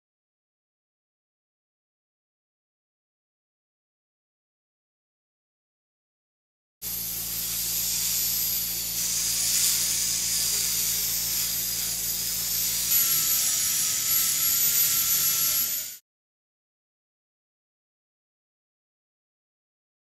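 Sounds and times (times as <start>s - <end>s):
dental handpiece whining: 6.8s - 16.0s.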